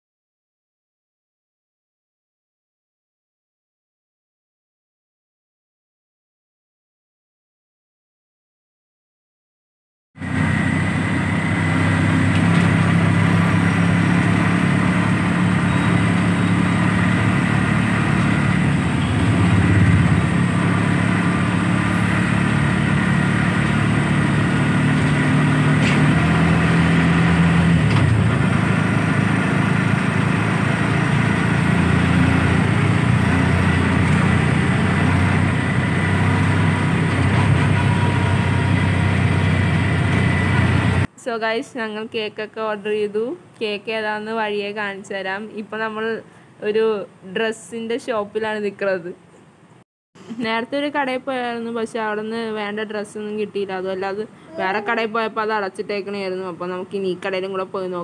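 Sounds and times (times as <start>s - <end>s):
vehicle engine hum: 10.2s - 41.1s
road noise inside vehicle: 10.2s - 41.2s.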